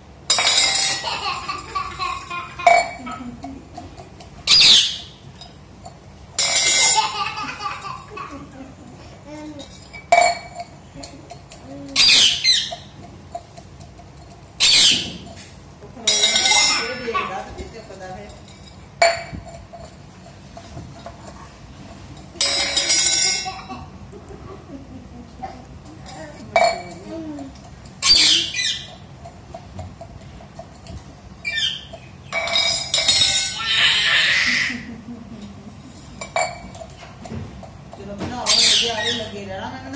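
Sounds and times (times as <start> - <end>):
steel tumbler clattering on tiles: 0.3 - 4.5, 5.4 - 8.6, 12.7 - 23.9, 31.9 - 33.8
parakeet screeching: 4.5 - 5.2, 12.0 - 12.9, 14.6 - 15.2, 28.0 - 29.0, 31.4 - 31.9, 32.7 - 34.8, 38.5 - 39.3.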